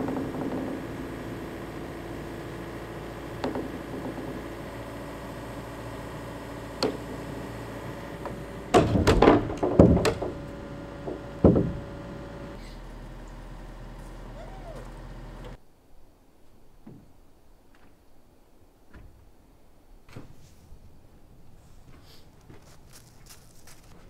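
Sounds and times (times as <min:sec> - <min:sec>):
wooden knocks and heavy thuds: 0:00.0 - 0:05.7, 0:08.2 - 0:12.5.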